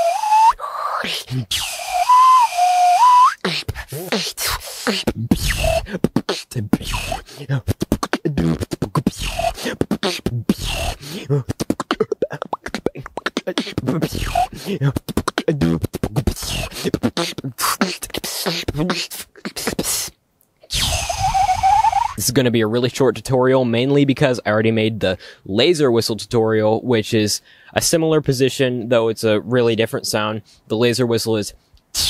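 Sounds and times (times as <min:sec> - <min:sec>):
low whistle switching pitch: 0:00.0 - 0:00.6, 0:01.5 - 0:03.5, 0:20.7 - 0:22.2
short whistled glides: 0:00.0 - 0:00.6, 0:01.5 - 0:03.5, 0:20.7 - 0:22.2
mouth clicks: 0:00.0 - 0:22.2
beatboxing into a microphone: 0:00.0 - 0:22.4.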